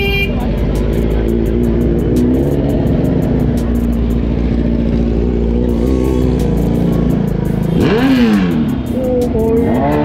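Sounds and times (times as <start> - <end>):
motorcycle engine revving: 0.0 - 10.0.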